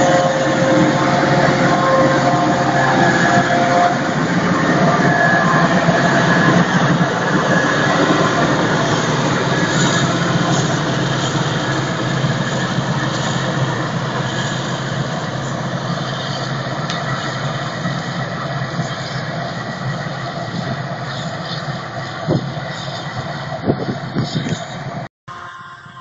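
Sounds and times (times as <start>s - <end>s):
forage harvester droning: 0.0s - 23.2s
tractor running: 0.0s - 24.8s.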